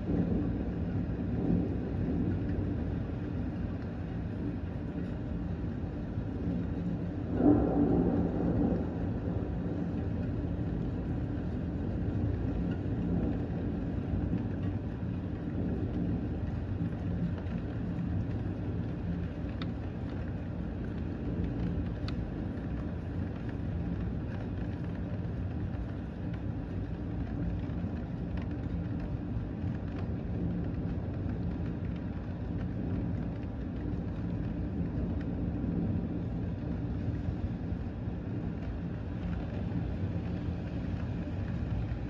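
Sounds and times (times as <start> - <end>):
low continuous rumble: 0.0 - 42.0
steady rain: 0.0 - 42.0.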